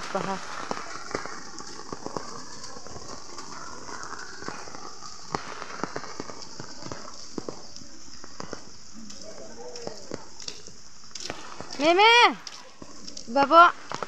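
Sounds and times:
raindrops ticking on surfaces: 0.0s - 14.0s
steady rain: 0.0s - 14.0s.

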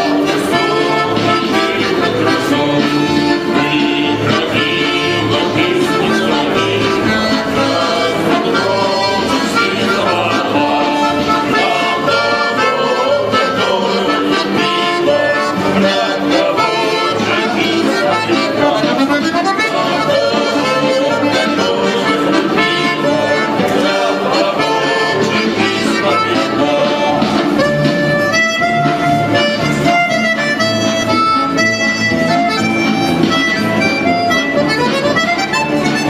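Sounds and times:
man singing: 0.0s - 27.4s
button accordion playing lively tune: 0.0s - 36.0s.

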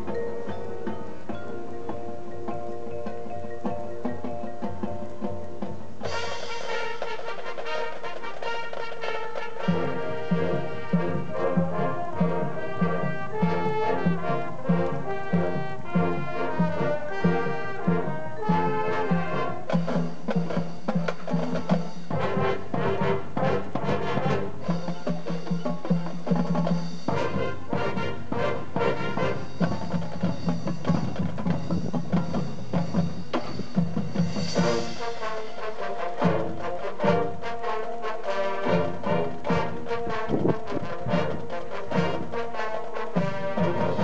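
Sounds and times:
marching drums: 0.0s - 44.0s
percussion ensemble: 0.0s - 44.0s
brass section playing: 6.0s - 30.0s, 34.3s - 44.0s.

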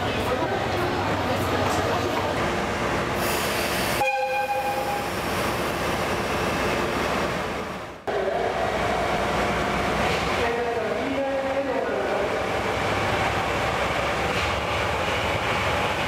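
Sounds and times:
locomotive horn blast: 4.0s - 5.1s.

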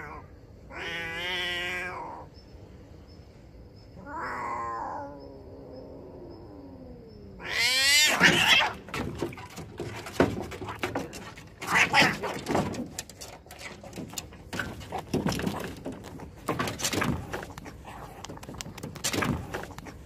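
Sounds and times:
cats yowling and screeching: 0.0s - 2.3s, 4.0s - 8.9s, 11.6s - 12.5s
cats scuffling: 8.1s - 20.0s.

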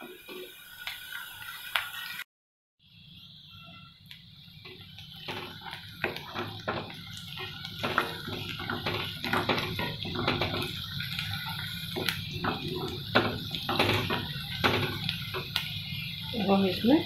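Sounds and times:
onion sizzling in oil: 0.0s - 17.0s
spatula scraping a pan: 5.2s - 15.6s.

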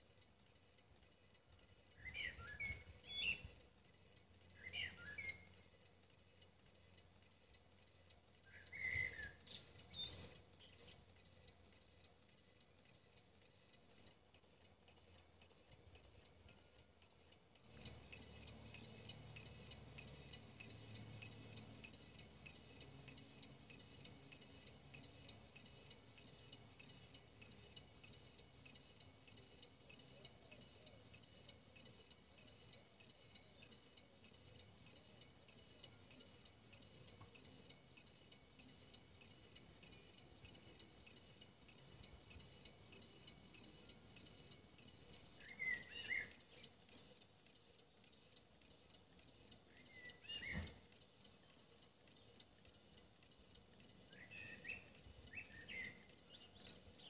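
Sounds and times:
faint hum with high whine: 0.0s - 57.0s
short bird chirps: 8.5s - 11.0s, 45.4s - 47.2s, 49.8s - 50.8s, 54.1s - 56.8s.

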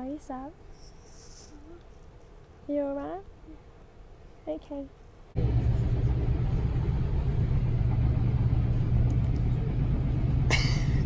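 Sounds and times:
train rumble inside carriage: 5.4s - 11.0s.

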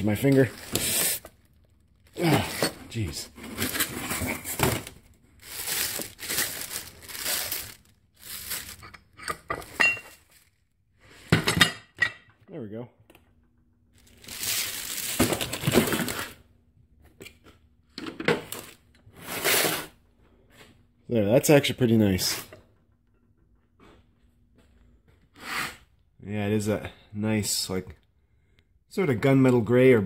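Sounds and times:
plastic wrapping crinkling: 0.0s - 8.9s, 10.1s - 10.6s, 14.0s - 16.4s.

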